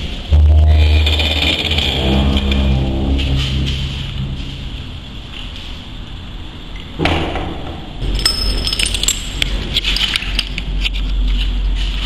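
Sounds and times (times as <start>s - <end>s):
low rumble: 0.0s - 6.7s
metal chains rattling: 8.0s - 10.0s.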